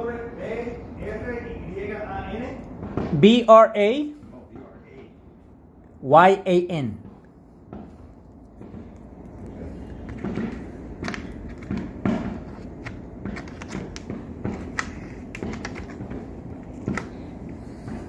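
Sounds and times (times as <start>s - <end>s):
low background noise: 0.0s - 18.0s
distant fireworks bangs and pops: 10.1s - 18.0s.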